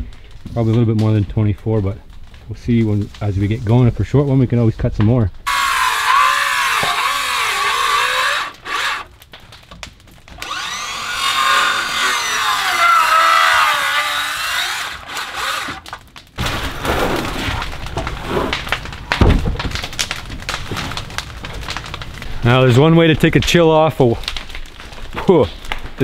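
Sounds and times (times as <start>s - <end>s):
circular saw cutting wood: 5.5s - 9.1s, 10.4s - 16.0s.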